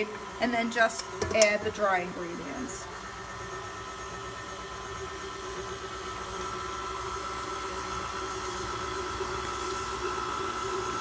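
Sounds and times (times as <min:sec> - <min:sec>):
stand mixer motor humming: 0:00.0 - 0:11.0.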